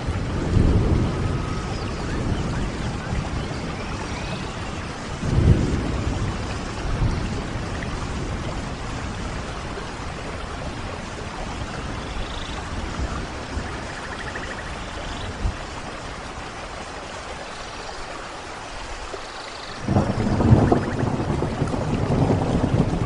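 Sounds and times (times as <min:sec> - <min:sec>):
rolling thunder: 0:00.0 - 0:14.7, 0:19.8 - 0:23.0
steady rain: 0:00.0 - 0:23.0.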